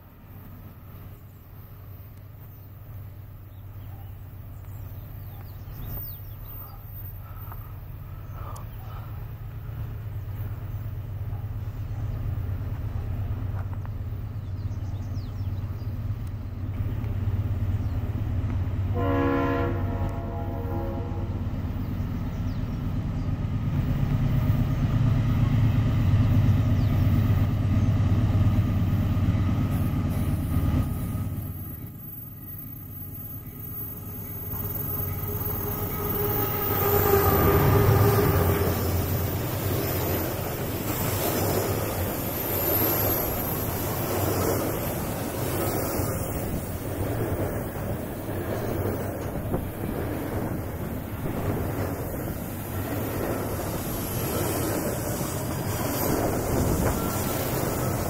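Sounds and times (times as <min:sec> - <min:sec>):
locomotive engine running: 0:00.0 - 0:58.0
train wheel noise: 0:00.0 - 0:58.0
train horn: 0:18.9 - 0:21.5, 0:34.5 - 0:39.0, 0:56.6 - 0:58.0.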